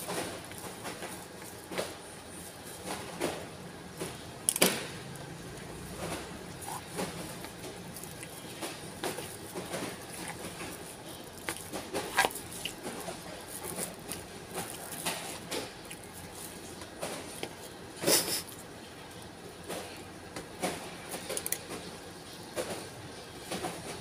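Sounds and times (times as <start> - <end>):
chewing and mouth noises: 5.3 - 20.0.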